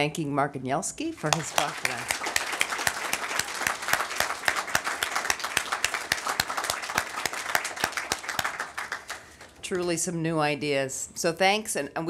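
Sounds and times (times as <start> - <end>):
audience applauding: 1.3 - 9.6.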